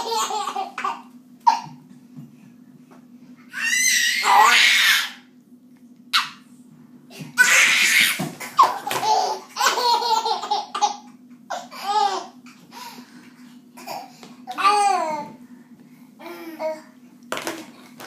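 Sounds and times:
baby laughing: 0.0s - 1.7s, 7.4s - 12.7s.

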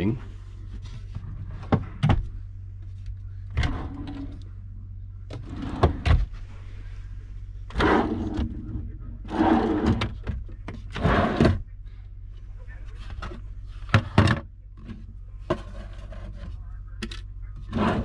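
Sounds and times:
low hum: 0.0s - 18.0s
drawer slides sliding: 17.7s - 18.0s.

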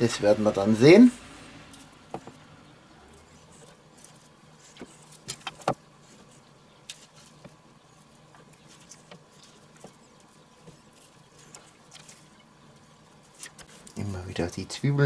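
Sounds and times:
clicks and taps of skewering: 4.7s - 5.8s.

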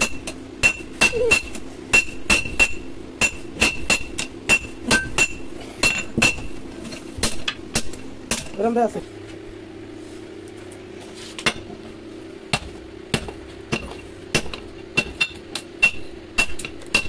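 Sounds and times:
hammer ringing on anvil: 0.0s - 6.4s, 13.7s - 17.0s.

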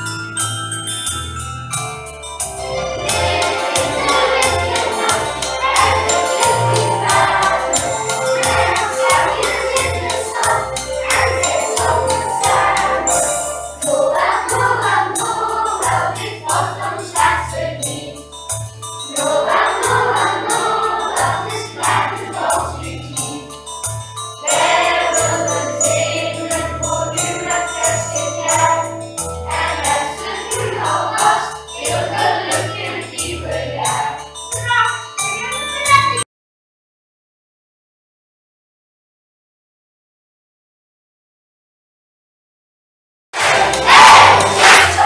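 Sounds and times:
sleigh bells keeping rhythm: 0.0s - 36.2s, 43.4s - 45.0s
children's choir singing: 2.8s - 18.2s, 19.1s - 23.5s, 24.4s - 34.2s, 43.4s - 45.0s.

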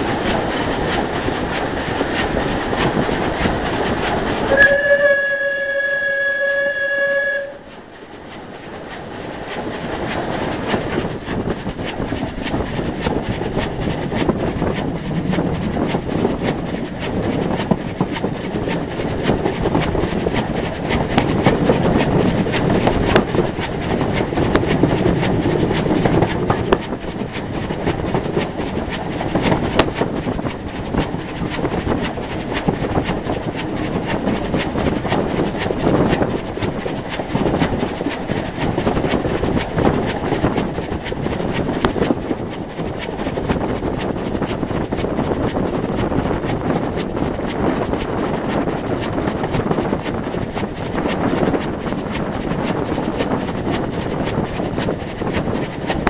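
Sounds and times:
train running rush: 0.0s - 56.0s
wheels clicking over rail joints: 0.0s - 56.0s
steam locomotive whistle: 4.5s - 7.7s.

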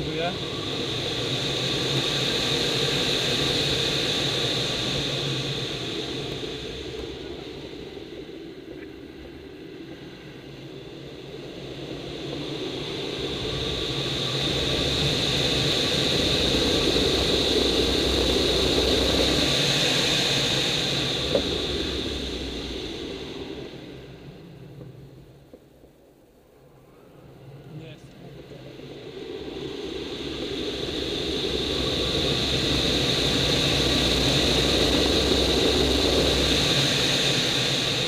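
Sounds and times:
air rushing over glider canopy: 9.6s - 25.3s, 28.3s - 38.0s.

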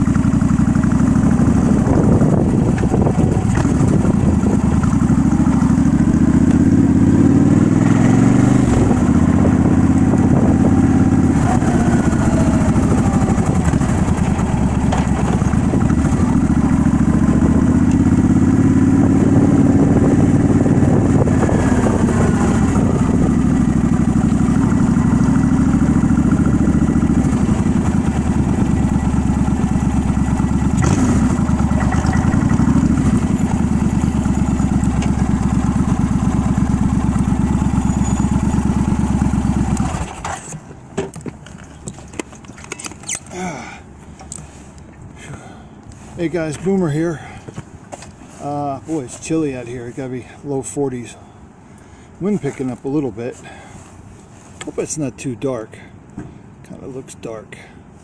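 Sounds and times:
motorcycle engine revving: 0.0s - 40.7s.

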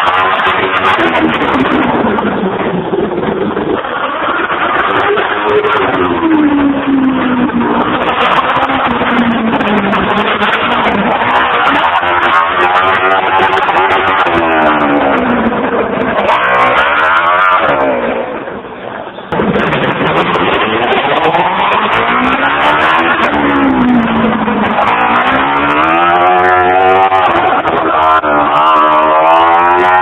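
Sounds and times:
motorcycle engine revving: 0.0s - 18.5s, 19.3s - 30.0s.

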